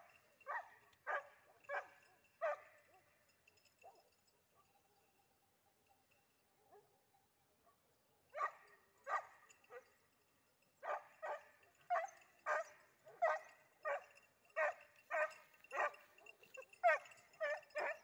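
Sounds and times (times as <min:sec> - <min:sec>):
dog barking: 0:00.0 - 0:03.2, 0:07.7 - 0:10.0, 0:10.8 - 0:18.0.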